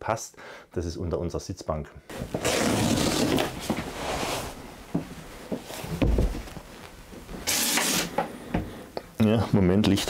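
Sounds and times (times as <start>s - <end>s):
fabric rustling: 2.1s - 7.4s.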